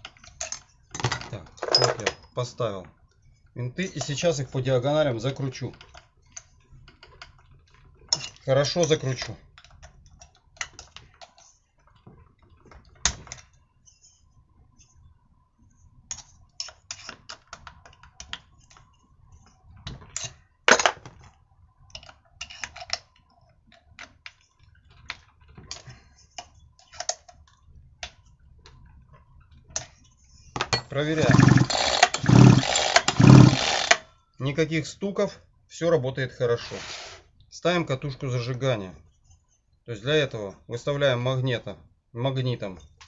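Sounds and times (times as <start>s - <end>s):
hand tool clicking on screws: 30.8s - 34.0s.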